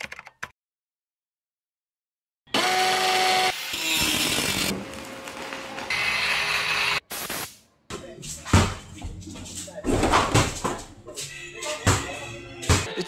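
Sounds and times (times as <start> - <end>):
keyboard clicks: 0.0 - 0.5
power tool running: 2.5 - 7.0.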